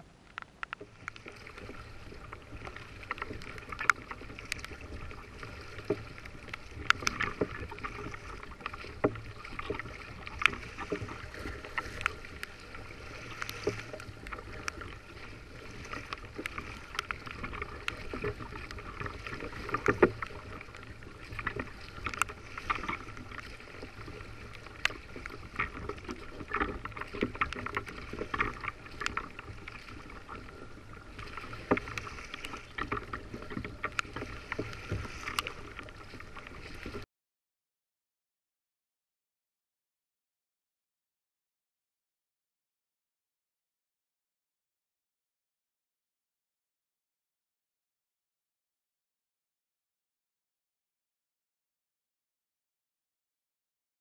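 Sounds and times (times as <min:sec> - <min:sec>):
water slapping against a hull: 0:00.1 - 0:37.1.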